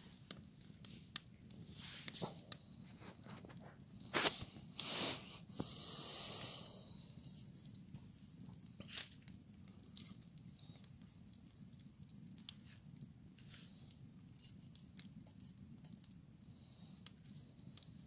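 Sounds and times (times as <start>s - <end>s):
campfire burning: 0.0s - 18.0s
wood crackling and snapping: 7.5s - 18.0s.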